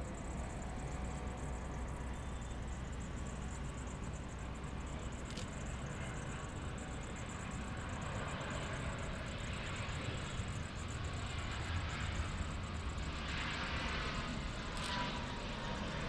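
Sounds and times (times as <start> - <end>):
distant jet airliner landing: 0.0 - 16.0
low wind rumble: 0.0 - 16.0
small click: 5.2 - 5.5, 14.8 - 15.0.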